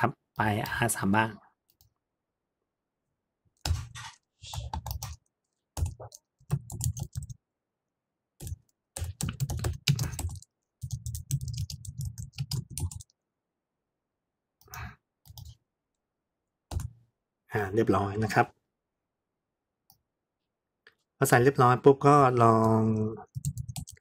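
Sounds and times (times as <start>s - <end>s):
typing on computer keyboard: 4.5s - 7.4s, 8.4s - 13.2s, 22.6s - 24.0s.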